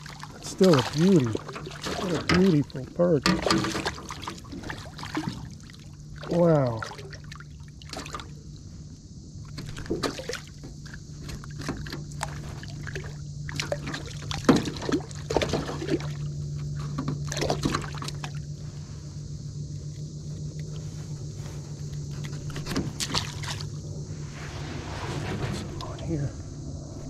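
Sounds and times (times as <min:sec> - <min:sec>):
light water splashes: 0:00.0 - 0:08.6, 0:09.4 - 0:18.6, 0:21.9 - 0:23.8
low steady hum: 0:00.0 - 0:27.0
fish knocking against metal boat: 0:01.0 - 0:04.2.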